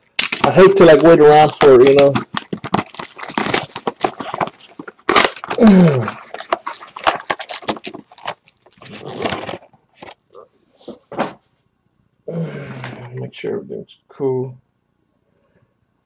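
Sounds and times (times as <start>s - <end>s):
foil packs crinkling: 0.0s - 10.2s.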